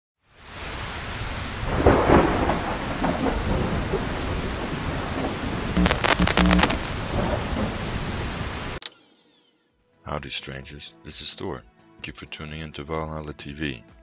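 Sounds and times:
steady rain: 0.2s - 8.8s
crackling thunder burst: 1.4s - 8.8s
thunder rumble: 1.6s - 8.8s.

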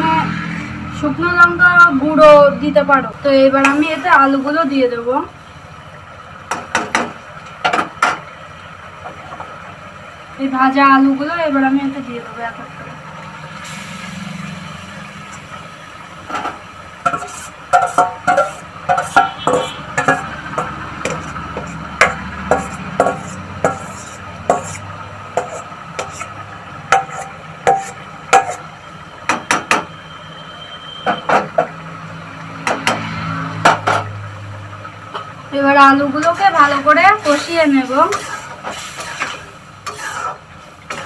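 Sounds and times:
metal bowl clinking against pan: 17.1s - 24.8s, 26.9s - 28.7s.

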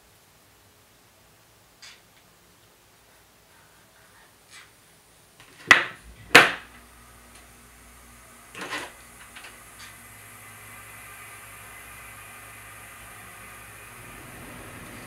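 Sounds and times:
hair flat iron clacking: 5.4s - 6.7s.

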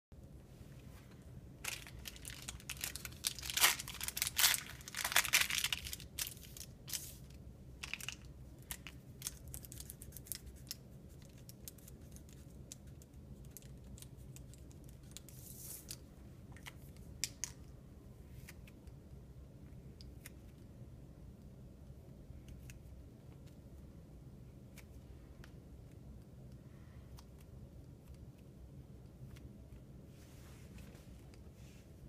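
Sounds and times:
aluminium foil crinkling: 1.6s - 16.0s.

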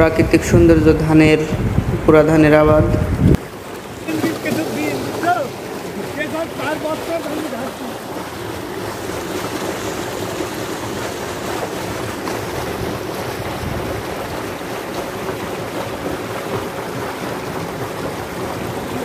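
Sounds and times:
wind on microphone: 0.0s - 3.6s, 8.0s - 19.0s.

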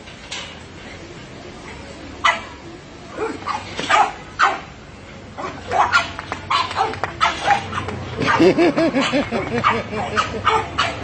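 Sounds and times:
dogs barking and yipping: 2.2s - 2.6s, 3.2s - 4.7s, 5.4s - 11.0s.

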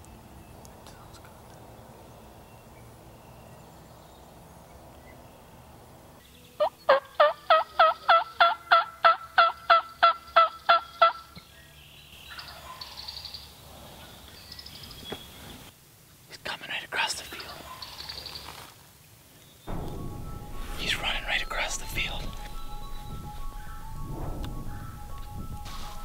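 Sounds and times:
turkey yelps: 6.6s - 11.2s.

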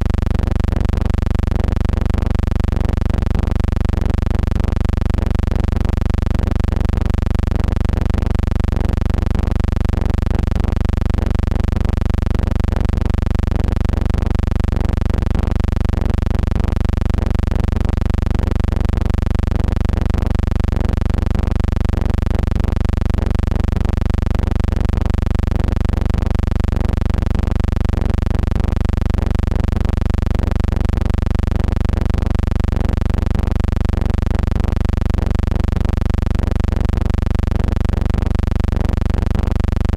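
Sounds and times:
steady deep hum: 0.0s - 39.9s.

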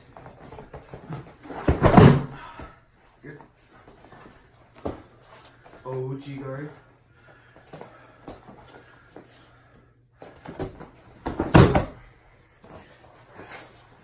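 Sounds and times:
body thudding on padded mat: 0.3s - 2.5s, 10.5s - 12.0s.

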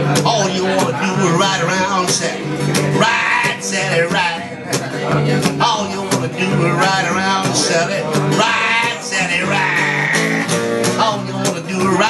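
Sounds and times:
acoustic guitar strumming: 0.0s - 12.0s
man singing: 0.0s - 12.0s.

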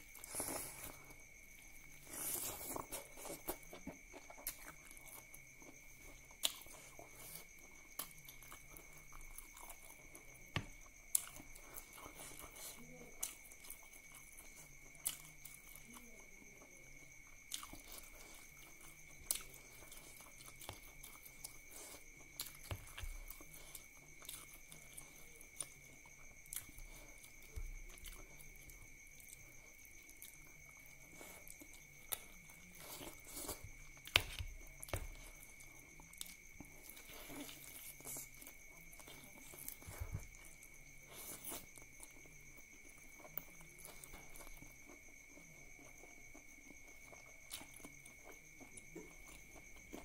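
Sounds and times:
chewing with wet mouth smacks: 17.1s - 50.0s.

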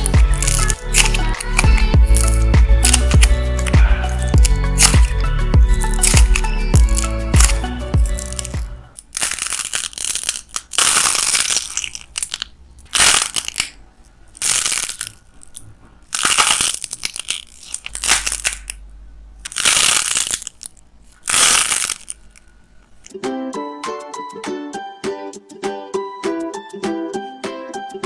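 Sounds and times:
dried clay crunching and crinkling: 0.0s - 18.8s, 19.4s - 22.6s.

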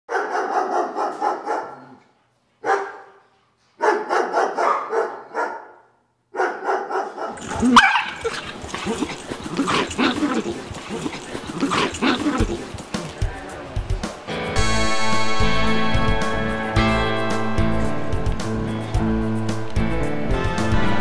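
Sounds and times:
dog yelping: 3.8s - 5.8s, 6.4s - 13.0s
dogs growling and barking: 6.5s - 14.0s.

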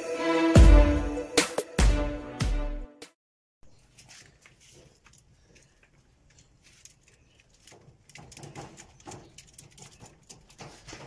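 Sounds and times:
rabbits scrabbling on cage floor: 3.8s - 11.0s.

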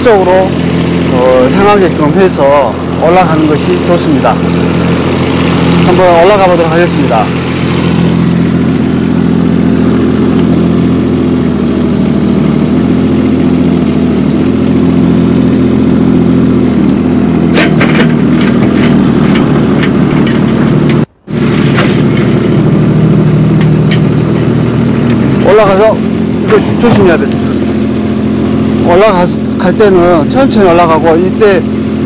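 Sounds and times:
diesel engine running: 0.0s - 32.0s
tracks clanking on metal ramps: 17.4s - 28.2s.

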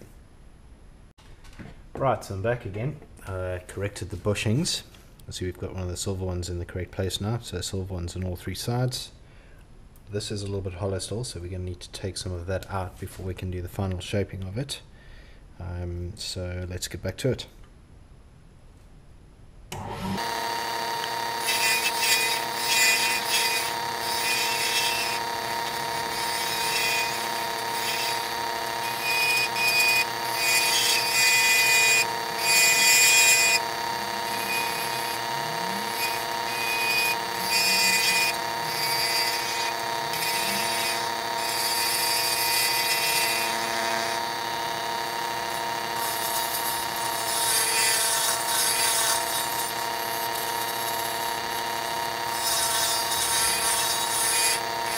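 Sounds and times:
wood lathe motor whine: 19.7s - 54.9s
turning tool scraping wood: 19.8s - 54.9s.

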